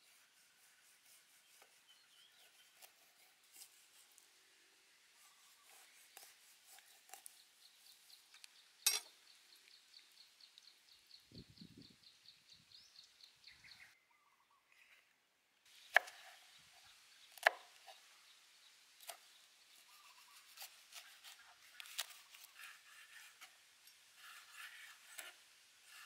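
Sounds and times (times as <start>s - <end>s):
knife scraping fish skin: 5.4s - 7.4s, 20.2s - 23.6s, 24.2s - 26.0s.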